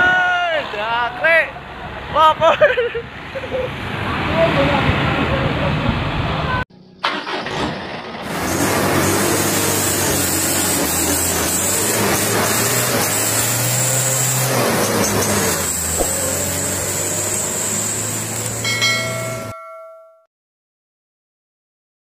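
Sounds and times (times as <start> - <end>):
vehicle engine droning: 4.0 - 19.6
bell-like chime: 18.6 - 20.3.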